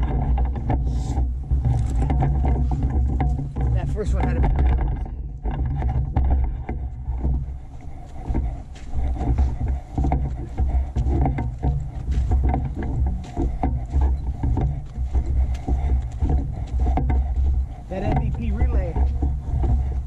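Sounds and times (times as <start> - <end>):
low thuds from jostled camera: 0.0 - 20.0
footsteps crunching on dry grass: 6.7 - 20.0.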